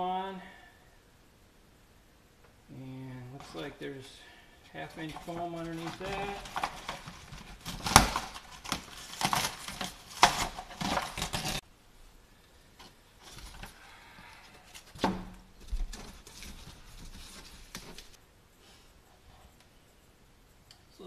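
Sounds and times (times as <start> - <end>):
insulation rustling: 2.4 - 21.0
plywood scraping and tearing: 4.9 - 11.6.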